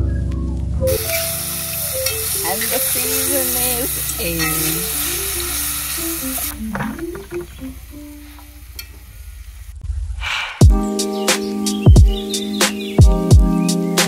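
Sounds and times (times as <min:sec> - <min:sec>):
background music: 0:00.0 - 0:08.7, 0:10.6 - 0:14.0
onion sizzling in hot oil: 0:00.9 - 0:09.7.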